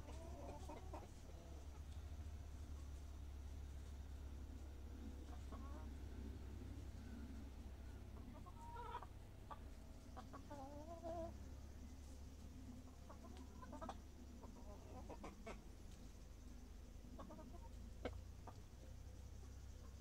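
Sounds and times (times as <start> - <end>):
chickens clucking softly: 0.0 - 20.0.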